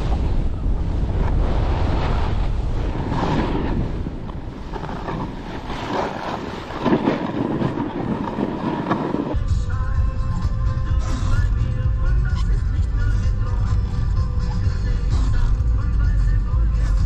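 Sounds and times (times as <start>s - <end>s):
wind buffeting microphone: 0.0s - 9.6s
ski edges scraping on snow: 0.9s - 9.4s.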